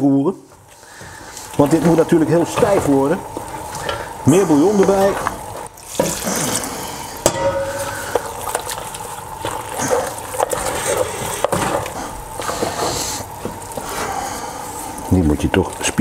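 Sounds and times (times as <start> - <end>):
spoon scraping thick mash: 7.8 - 14.2.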